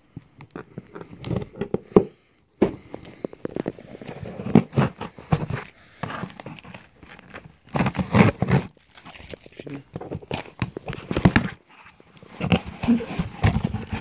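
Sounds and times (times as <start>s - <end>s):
cardboard box being torn open: 3.4s - 8.8s.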